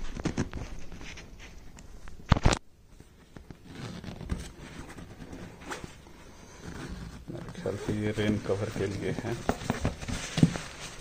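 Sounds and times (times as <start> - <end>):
nylon fabric rustling: 3.6 - 11.0.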